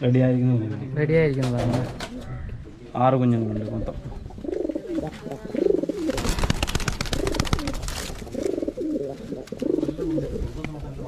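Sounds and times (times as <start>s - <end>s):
pigeons cooing: 3.6s - 11.0s
wings flapping: 5.8s - 10.2s.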